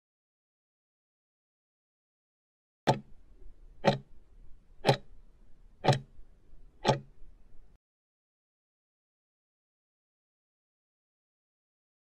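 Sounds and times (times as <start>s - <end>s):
clock ticking: 2.9s - 3.2s, 3.8s - 4.2s, 4.8s - 5.2s, 5.8s - 6.2s, 6.8s - 7.2s.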